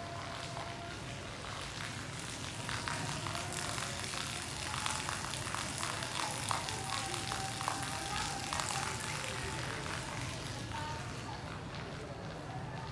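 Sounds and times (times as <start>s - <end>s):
water splashing onto paving: 0.0s - 12.9s.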